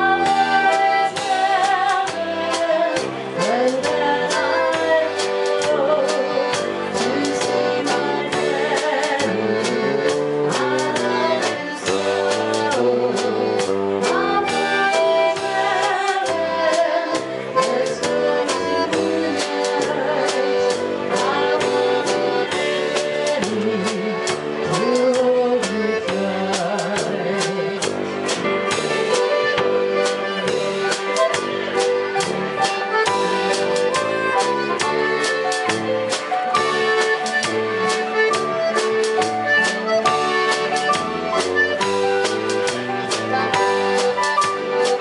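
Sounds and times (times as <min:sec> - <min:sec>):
woman singing: 0:00.0 - 0:27.9
concertina: 0:00.0 - 0:45.0
drum kit beat: 0:00.0 - 0:45.0
electronic keyboard: 0:00.0 - 0:45.0.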